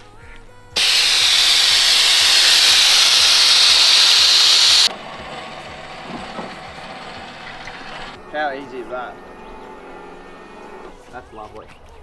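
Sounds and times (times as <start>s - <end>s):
air suspension venting hiss: 0.8s - 4.9s.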